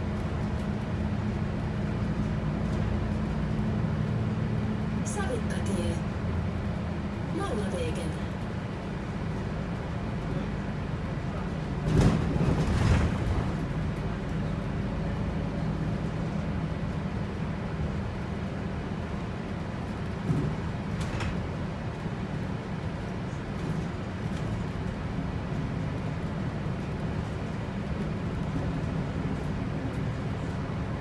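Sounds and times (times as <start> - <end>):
bus engine droning: 0.0 - 31.0
road noise: 0.0 - 31.0
bus body knocking over bumps: 11.5 - 14.2, 20.1 - 21.8.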